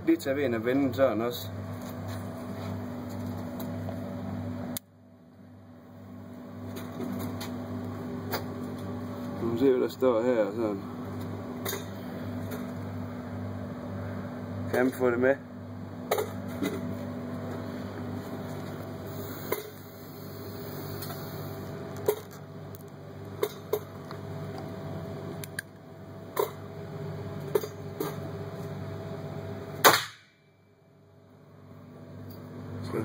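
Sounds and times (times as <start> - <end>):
ventilation hum: 0.0 - 33.0
revolver gunshot: 29.8 - 30.4.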